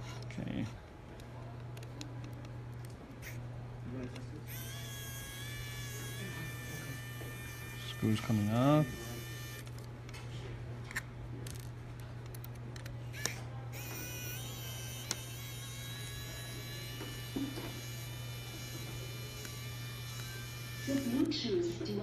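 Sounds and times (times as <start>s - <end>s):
electric screwdriver motor whine: 4.5s - 9.8s, 13.2s - 21.5s.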